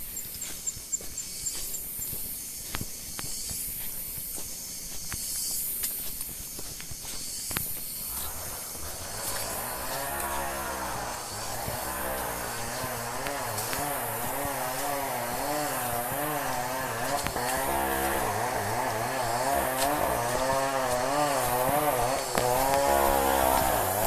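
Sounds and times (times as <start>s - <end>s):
distant chainsaw running: 7.8s - 24.0s.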